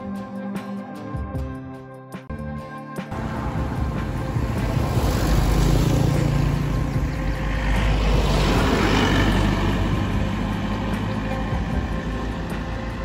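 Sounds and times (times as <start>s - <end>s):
pickup truck driving by: 3.1s - 13.0s
traffic low rumble: 3.1s - 13.0s.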